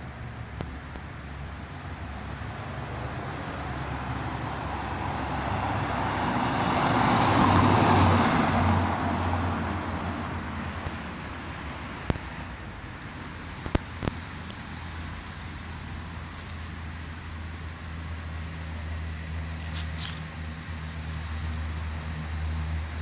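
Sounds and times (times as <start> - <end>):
car driving past: 2.8 - 10.7.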